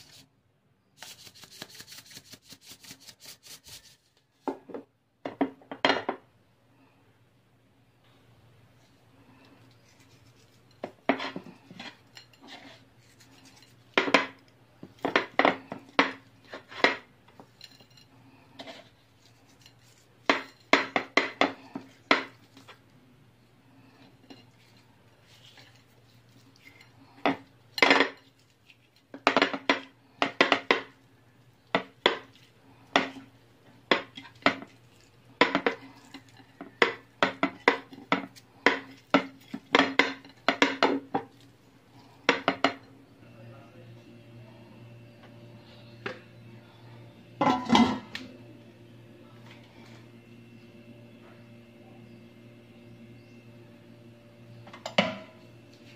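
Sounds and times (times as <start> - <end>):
steady low hum: 6.4 - 55.9
plate clinking on tiled counter: 42.2 - 42.9.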